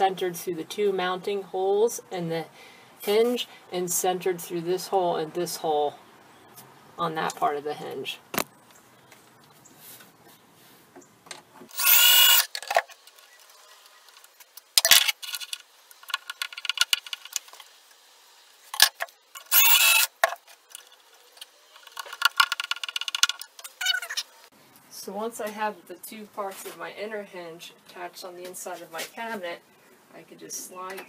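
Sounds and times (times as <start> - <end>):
cordless drill drilling wood: 11.7 - 12.6, 19.4 - 20.8
screwdriver turning screws: 11.7 - 13.2, 18.8 - 24.0.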